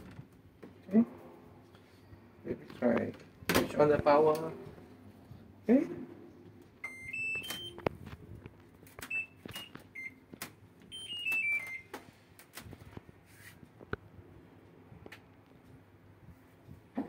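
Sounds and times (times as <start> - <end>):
short key beeps: 6.8 - 7.8, 10.9 - 11.9.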